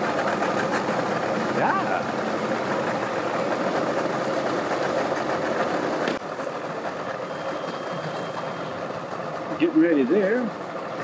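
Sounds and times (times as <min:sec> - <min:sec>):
boat engines idling: 0:00.0 - 0:11.0
outboard motor churning water: 0:00.0 - 0:11.0.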